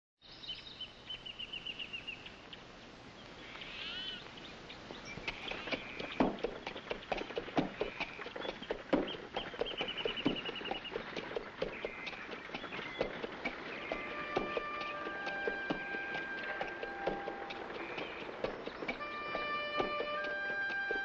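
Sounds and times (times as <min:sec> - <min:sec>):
birds singing: 0:00.2 - 0:21.0
horse hooves clip-clopping: 0:04.8 - 0:21.0.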